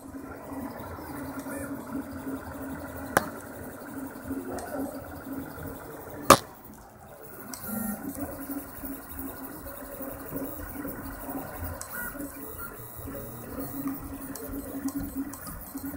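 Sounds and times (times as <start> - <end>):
sharp knock: 3.2 - 3.4, 6.3 - 6.5
three-d printer motors whirring: 7.2 - 15.9.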